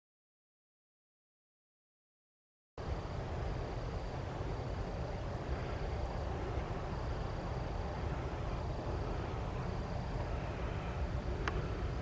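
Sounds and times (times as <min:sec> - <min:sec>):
faint high insect trill: 0:02.8 - 0:12.0
steady low rumble: 0:02.8 - 0:12.0.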